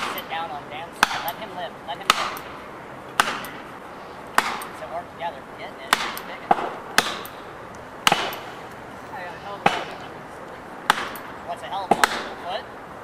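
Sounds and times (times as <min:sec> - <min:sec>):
hammer striking wedges: 0:00.0 - 0:00.4, 0:01.0 - 0:02.6, 0:03.2 - 0:03.7, 0:04.4 - 0:04.8, 0:05.9 - 0:08.6, 0:09.6 - 0:10.0, 0:10.9 - 0:12.5.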